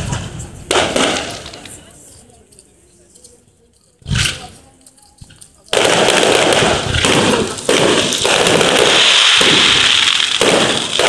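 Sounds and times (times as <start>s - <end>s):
fireworks crackling: 0.0s - 11.0s
firework bang: 5.8s - 11.0s.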